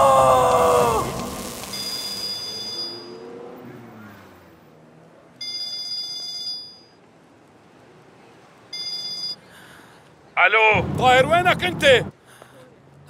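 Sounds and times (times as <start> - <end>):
phone ringtone ringing: 1.7 - 3.3, 5.4 - 7.0, 8.8 - 9.4.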